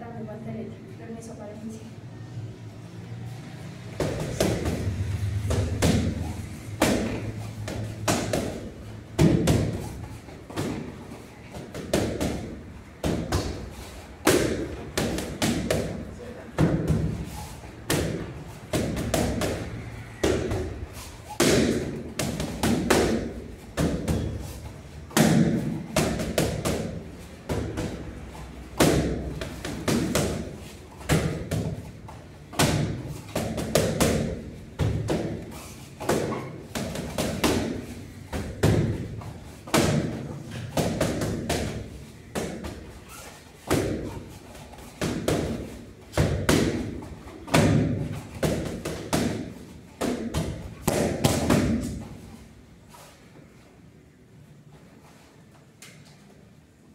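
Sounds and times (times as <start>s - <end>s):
punches and kicks on mitts: 4.0s - 11.0s, 11.6s - 16.0s, 16.6s - 17.3s, 17.9s - 24.4s, 25.1s - 28.1s, 28.8s - 43.0s, 43.6s - 52.1s.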